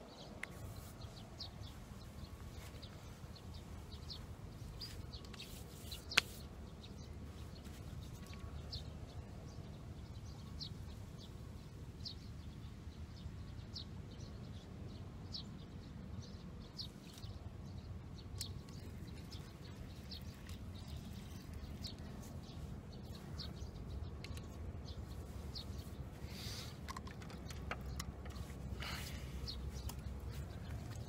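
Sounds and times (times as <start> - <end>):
small bird chirping: 16.2 - 31.0.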